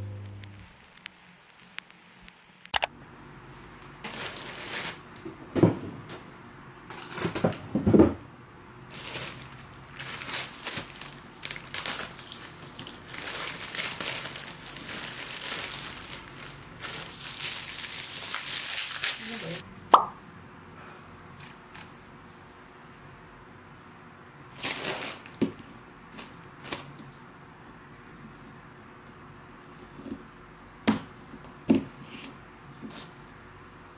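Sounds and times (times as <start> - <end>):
plastic bags crinkling: 4.0 - 5.1, 8.9 - 19.6, 24.6 - 25.4, 26.2 - 26.9.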